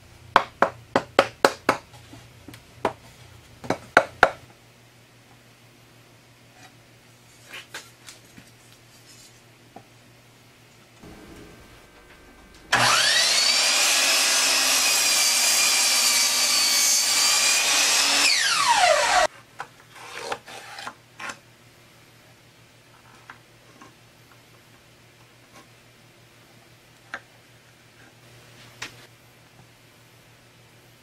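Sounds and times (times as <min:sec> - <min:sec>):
power tool motor whine: 0:11.0 - 0:19.3.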